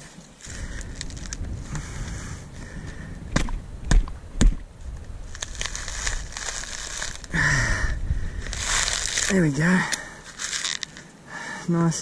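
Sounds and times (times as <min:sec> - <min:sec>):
coconut husk ripping: 0:00.4 - 0:01.4, 0:05.2 - 0:07.7, 0:08.3 - 0:11.0
coconut thumping onto stick: 0:03.3 - 0:04.6.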